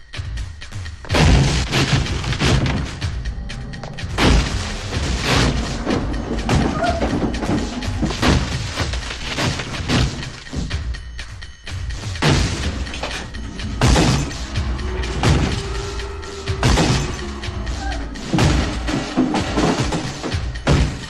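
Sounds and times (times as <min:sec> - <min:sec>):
film score music: 0:00.0 - 0:21.0.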